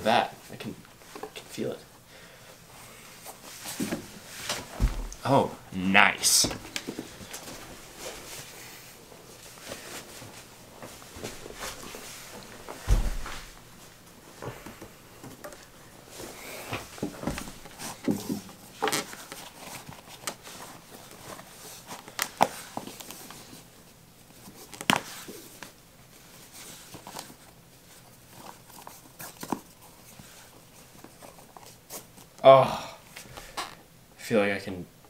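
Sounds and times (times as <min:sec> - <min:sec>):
boot rustling: 0:03.3 - 0:05.2, 0:09.4 - 0:13.9.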